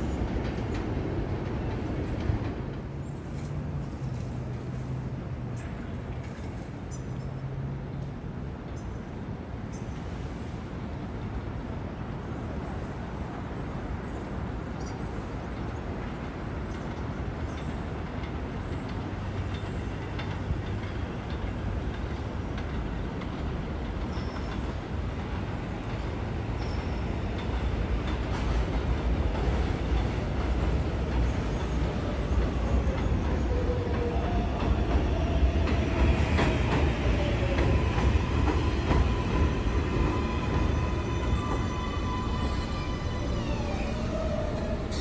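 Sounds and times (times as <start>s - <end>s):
train rail rumble: 0.0s - 45.0s
steady high tones: 36.2s - 45.0s.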